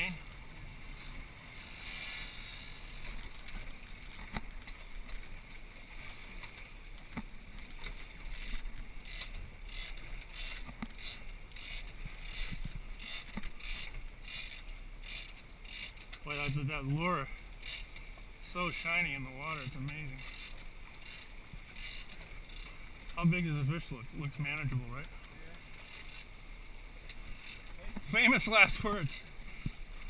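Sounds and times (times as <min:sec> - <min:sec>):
water rushing past hull: 0:00.0 - 0:30.0.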